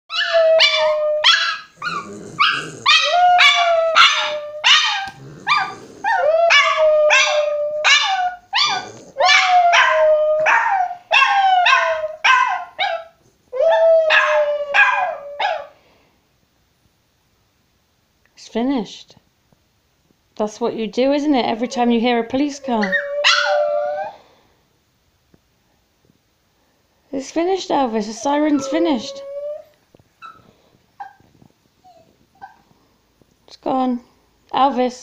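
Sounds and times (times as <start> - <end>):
dog howling: 0.1 - 15.7, 22.5 - 24.2, 28.2 - 29.8
small dog barking and yipping: 0.1 - 15.7, 22.7 - 24.0, 30.2 - 32.6.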